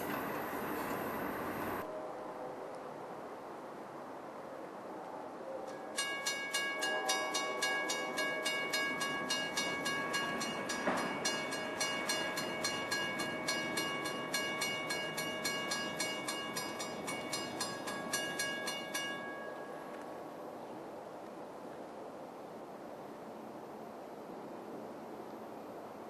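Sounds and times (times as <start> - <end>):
railroad crossing bell ringing: 5.8 - 20.2.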